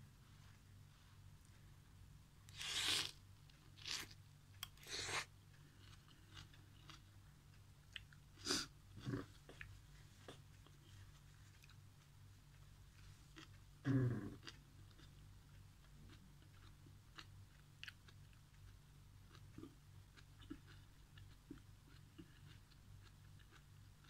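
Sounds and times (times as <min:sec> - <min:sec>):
low steady hum: 0:00.0 - 0:24.0
person chewing and slurping: 0:02.5 - 0:03.2, 0:03.8 - 0:07.0.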